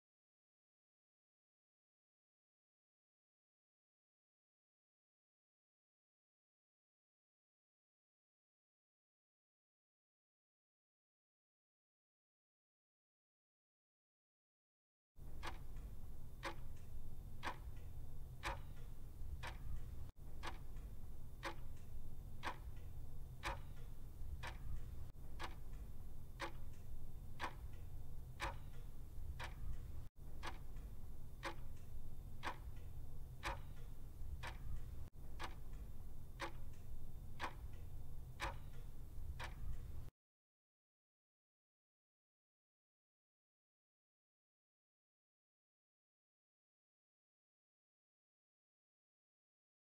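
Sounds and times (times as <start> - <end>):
clock ticking: 15.2 - 40.1.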